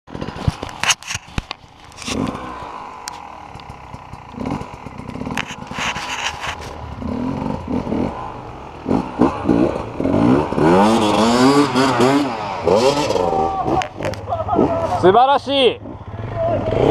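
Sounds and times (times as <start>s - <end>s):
clattering and scraping: 0.1s - 7.0s
dirt bike engine revving: 0.1s - 16.9s.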